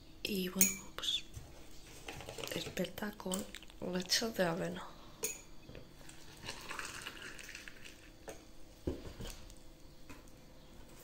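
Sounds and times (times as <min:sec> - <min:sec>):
milk pouring into mug: 0:06.0 - 0:08.3.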